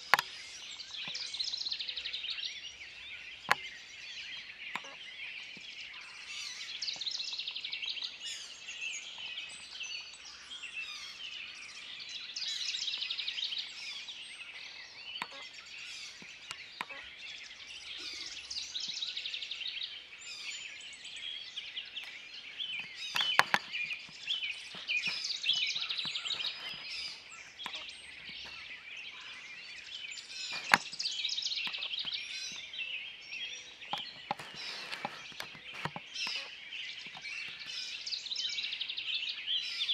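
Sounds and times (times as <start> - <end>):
chorus of songbirds: 0.0 - 39.9
sharp clicks: 22.8 - 28.6, 30.5 - 32.6, 33.9 - 36.5.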